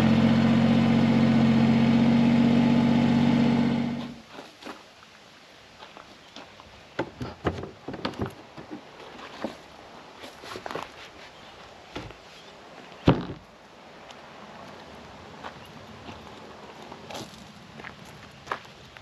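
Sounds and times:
footsteps on gravel: 5.8s - 6.7s, 8.7s - 11.4s, 15.4s - 19.0s
wooden knocks: 7.0s - 8.8s
wooden lid thump: 13.1s - 13.4s.

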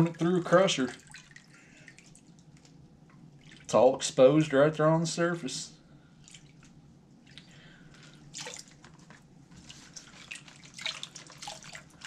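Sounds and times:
water dripping and splashing: 0.0s - 3.8s, 6.2s - 12.0s.

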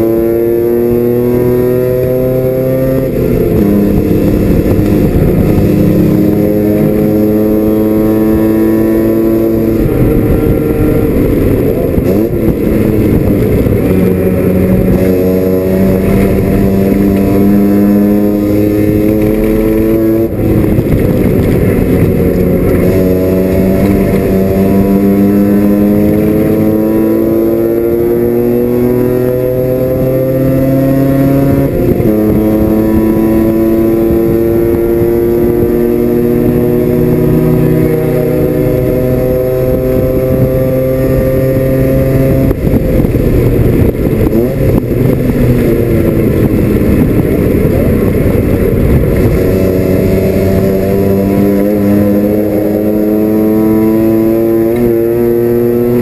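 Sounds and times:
rotary engine revving through gears: 12.0s - 42.9s, 49.0s - 56.0s.

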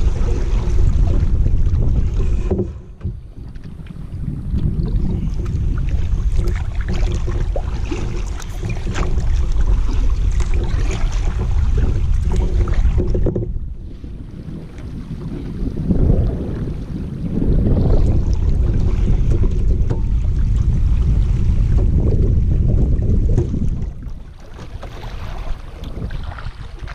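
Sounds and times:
low steady rumble: 0.0s - 26.9s
paddle dipping into water: 0.0s - 26.9s
splashes and drips: 4.6s - 13.2s, 23.4s - 26.9s.

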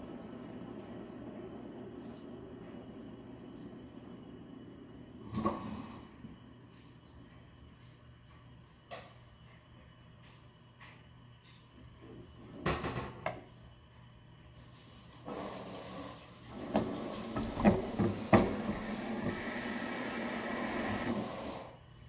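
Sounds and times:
steady hiss: 14.4s - 22.0s.

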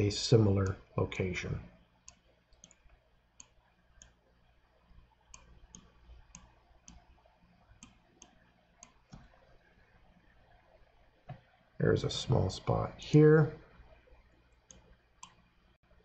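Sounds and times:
computer mouse clicks: 2.0s - 9.7s, 13.8s - 15.5s.

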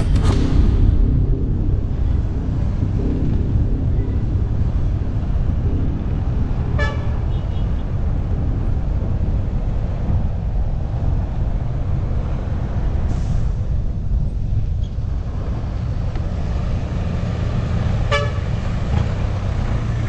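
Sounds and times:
road traffic: 0.0s - 20.0s
wind rumble: 0.0s - 20.0s
vehicle horn toot: 6.8s - 7.8s, 18.0s - 18.6s.

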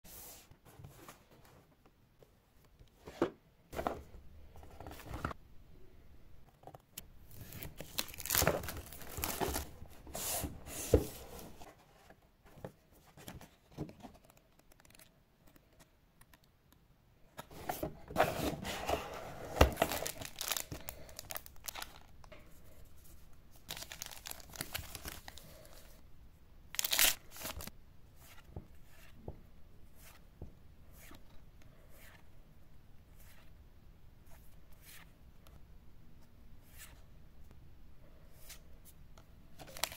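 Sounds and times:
plastic wrap tearing and crinkling: 7.4s - 9.8s, 19.8s - 22.1s, 23.7s - 25.4s, 26.8s - 27.7s.

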